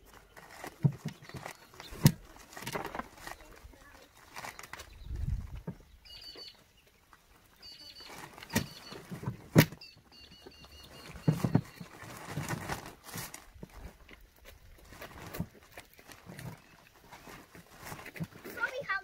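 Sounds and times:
plastic rustling: 0.0 - 19.0
bird chirping: 1.0 - 2.2, 3.2 - 12.2.

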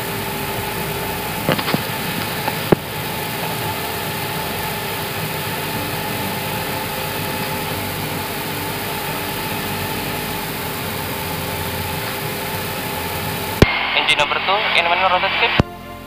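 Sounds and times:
faint steady hum: 0.0 - 16.0
rush of air: 13.6 - 14.5.

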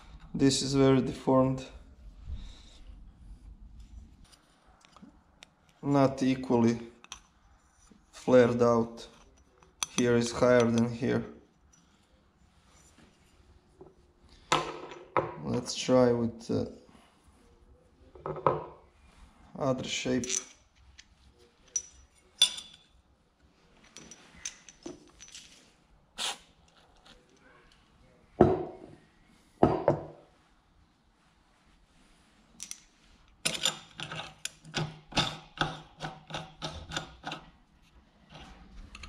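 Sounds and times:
metal parts clinking: 20.2 - 22.9, 23.8 - 25.7, 32.6 - 35.4.

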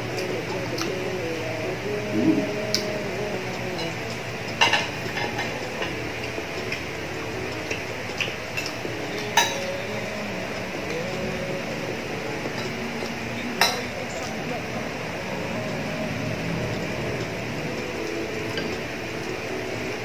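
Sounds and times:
utensils clinking on glass bowl: 8.2 - 9.8.

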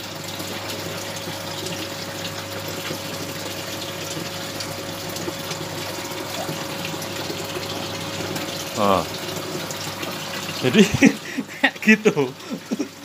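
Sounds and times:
aquarium filter pump running: 0.0 - 13.0
falling water rushing: 3.3 - 13.0.

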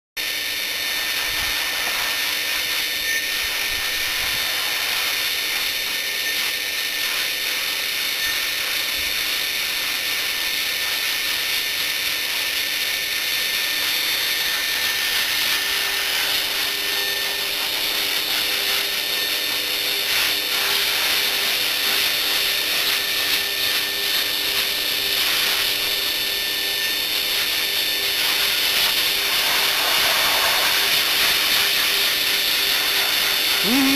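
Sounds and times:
dog dryer motor whine: 0.2 - 33.9
air rushing from hose nozzle: 0.9 - 2.7, 29.0 - 31.6.

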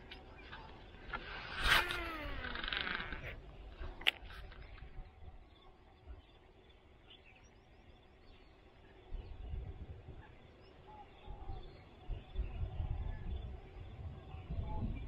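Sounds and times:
bird calls and chirps: 0.0 - 15.0
wind gusts buffeting microphone: 9.0 - 10.5, 11.1 - 15.0.

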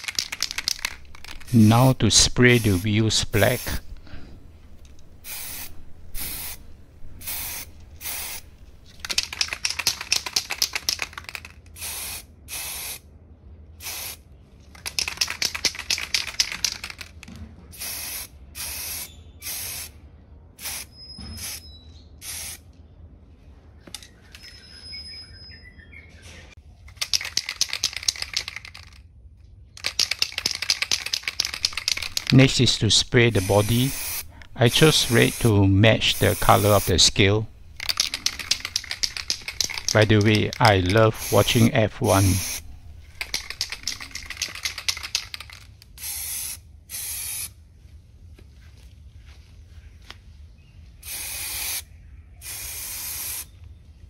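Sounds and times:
spray paint can hissing: 0.0 - 13.0, 13.8 - 14.2, 14.8 - 17.2, 17.8 - 19.9, 20.6 - 21.6, 22.2 - 22.6, 27.0 - 29.0, 29.8 - 47.5, 51.0 - 51.8, 52.4 - 53.5.

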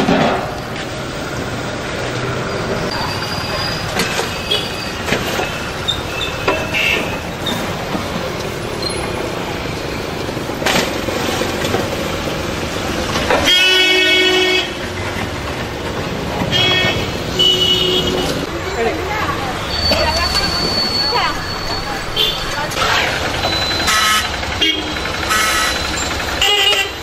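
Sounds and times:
street traffic noise: 0.0 - 27.0
vehicle horn honk: 6.7 - 7.1, 13.4 - 14.8, 16.5 - 18.4, 23.8 - 25.8, 26.4 - 27.0.

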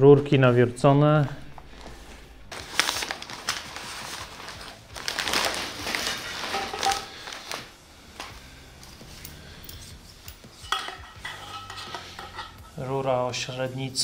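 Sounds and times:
plastic wrapping crinkling: 1.5 - 9.6.

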